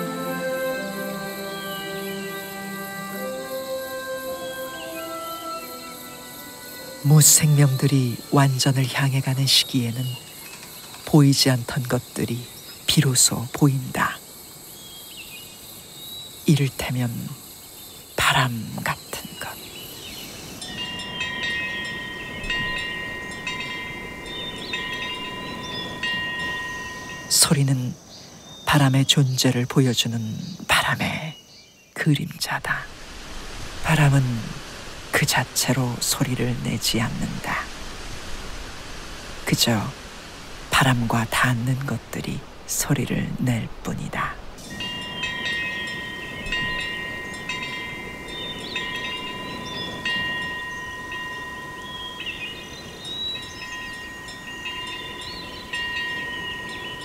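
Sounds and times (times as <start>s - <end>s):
metal wind bell ringing: 20.6s - 27.5s, 44.6s - 57.0s.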